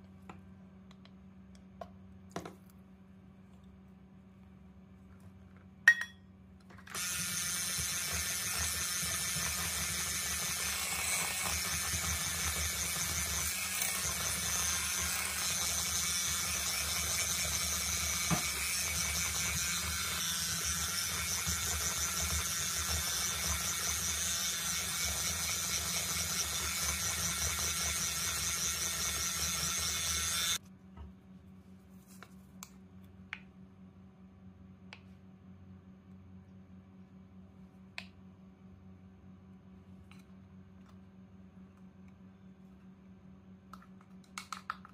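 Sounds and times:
electric hand mixer whine: 6.9 - 30.6.

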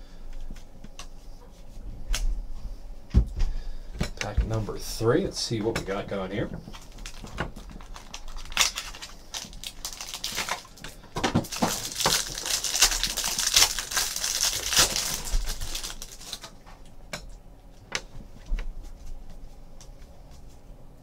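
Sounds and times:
plastic wrapper crinkling and tearing: 6.7 - 16.6.

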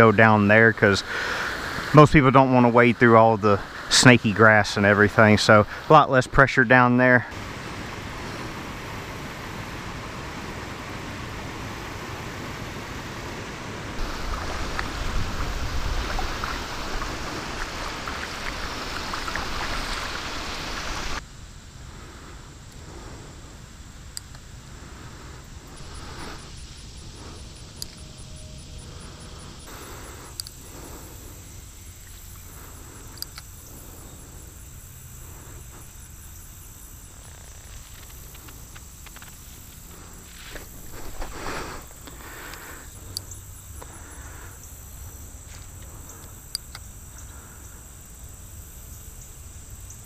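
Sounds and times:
high insect chirp: 0.0 - 50.0
water splashing over concrete spillway: 13.8 - 21.2
small click: 30.4 - 30.6, 33.2 - 33.5, 46.5 - 46.9.

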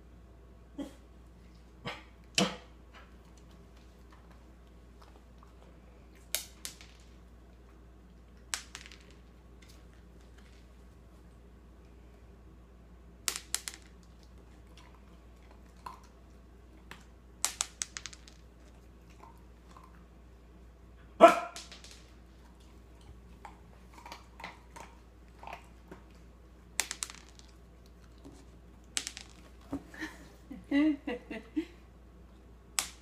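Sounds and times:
food pieces clicking on wooden floor: 8.4 - 10.7, 13.3 - 14.3, 16.9 - 18.7, 21.5 - 22.2, 26.8 - 29.8
dog barking: 21.2 - 21.6.

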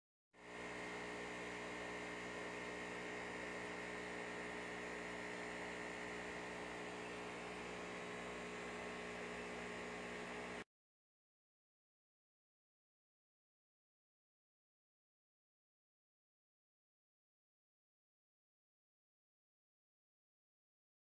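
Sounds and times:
electric hum: 0.4 - 10.6.

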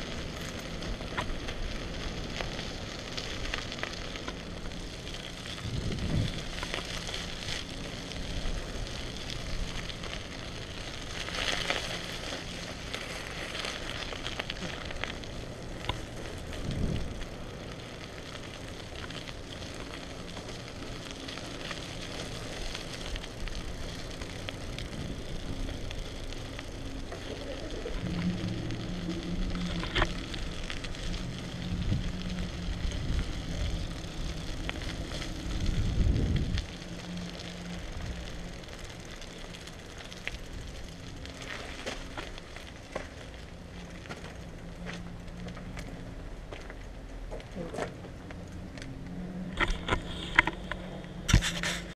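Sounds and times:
low hum: 0.0 - 51.9
tyres hissing on wet pavement: 0.0 - 51.9
wind on microphone: 5.6 - 6.6, 16.6 - 17.2, 31.5 - 33.9, 34.5 - 36.8.

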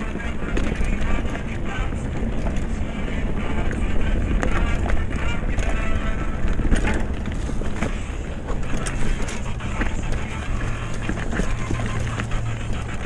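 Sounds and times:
bike clicks and rattles: 0.0 - 13.0
bike tyres on dirt trail: 0.0 - 13.0.

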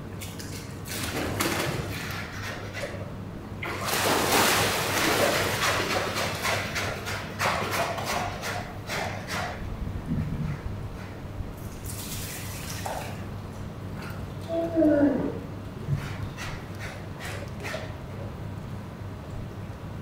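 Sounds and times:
splash into pool: 3.6 - 6.2, 11.8 - 13.2
water sloshing: 3.6 - 7.0.

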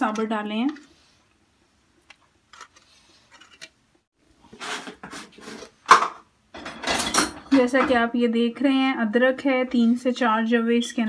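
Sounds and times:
rubbing and scraping handling noise: 0.0 - 6.1.

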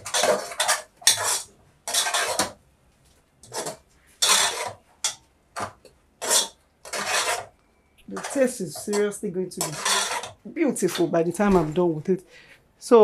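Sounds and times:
metal ladle scraping cooking pot: 0.0 - 2.6, 3.4 - 11.2.

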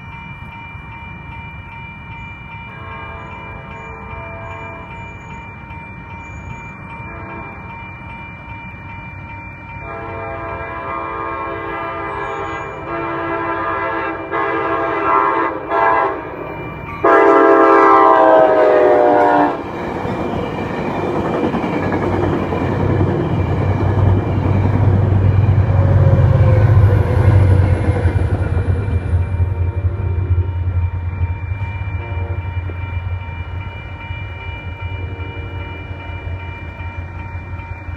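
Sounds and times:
electronic crossing bell ringing: 0.0 - 37.9
train rumbling over crossing: 0.0 - 37.9
locomotive air horn blasts: 9.8 - 16.3, 17.0 - 19.6.

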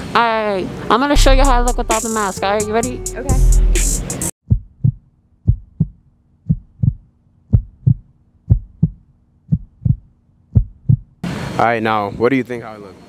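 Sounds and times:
heartbeat thumps: 1.2 - 2.1, 4.4 - 11.2.

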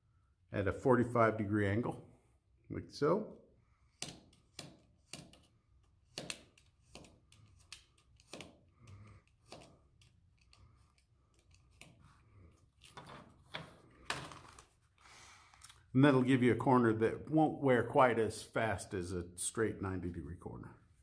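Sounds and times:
utility knife cutting paper: 4.0 - 12.2.

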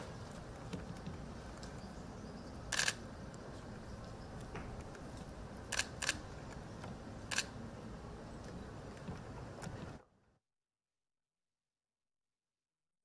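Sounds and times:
camera shutters clicking: 2.7 - 3.0, 5.7 - 6.2, 7.3 - 7.5.

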